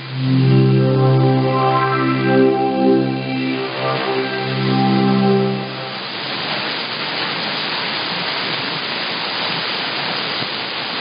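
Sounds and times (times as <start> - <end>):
radio music: 0.0 - 6.3
shortwave radio hiss: 0.0 - 7.2.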